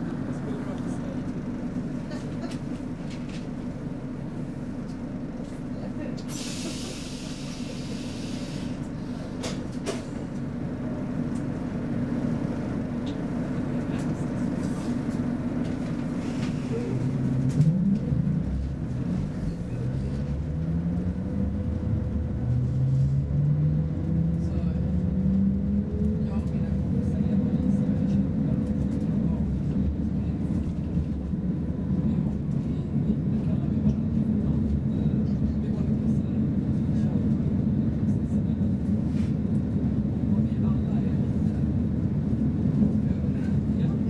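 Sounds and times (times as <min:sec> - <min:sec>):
train interior low hum: 0:00.0 - 0:44.0
air hiss: 0:06.3 - 0:08.8.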